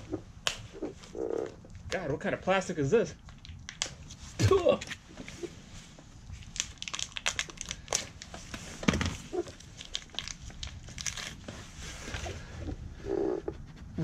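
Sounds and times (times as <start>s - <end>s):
plastic packaging crinkling: 6.3s - 12.3s.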